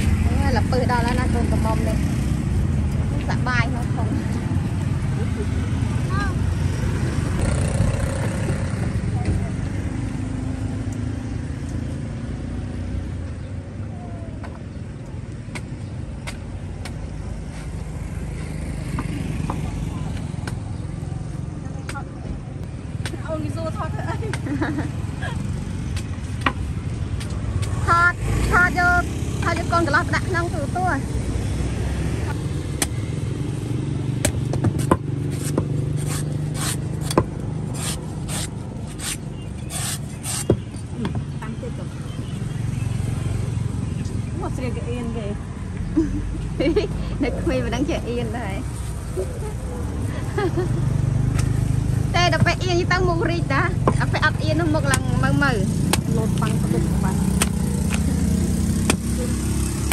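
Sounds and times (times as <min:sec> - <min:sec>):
street traffic rumble: 0:00.0 - 0:59.9
cleaver chopping coconut: 0:34.2 - 0:40.7, 0:54.8 - 0:59.9.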